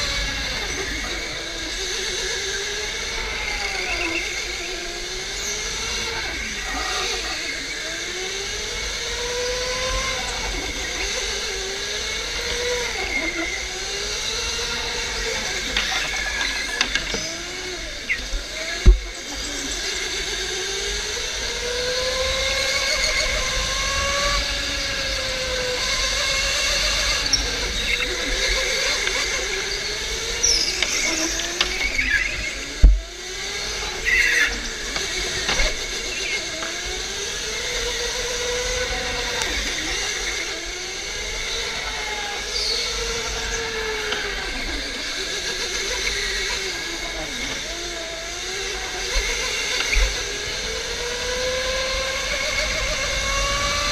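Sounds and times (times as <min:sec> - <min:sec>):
electric go-kart motor whining: 0:00.0 - 0:53.9
tyres squealing on concrete: 0:34.0 - 0:36.4.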